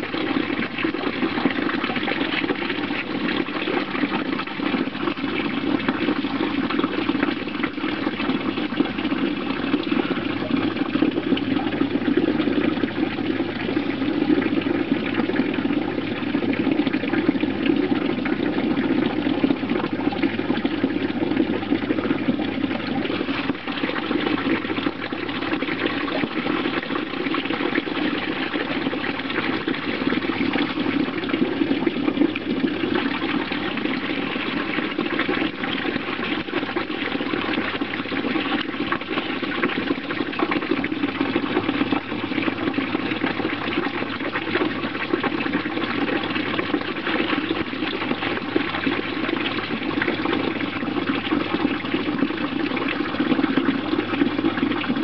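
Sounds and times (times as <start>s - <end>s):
running water rushing: 0.0s - 36.4s.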